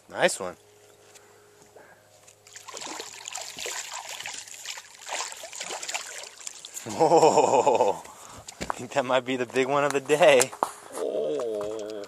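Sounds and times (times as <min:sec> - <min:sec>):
fish splashing in water: 0:02.5 - 0:06.9.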